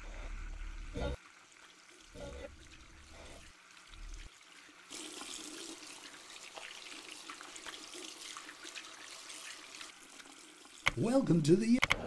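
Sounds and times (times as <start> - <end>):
tap water running into sink: 4.9 - 10.9.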